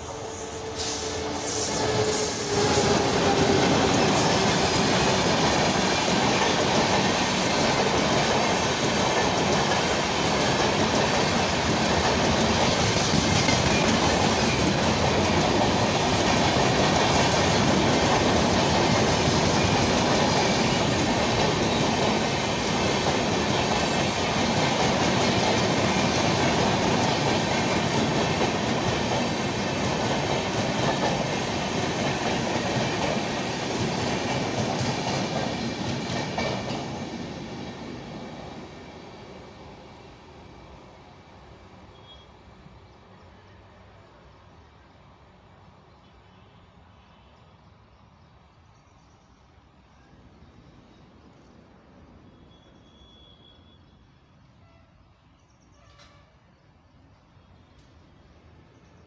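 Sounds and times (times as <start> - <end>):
train wheels on rails: 0.0 - 42.4.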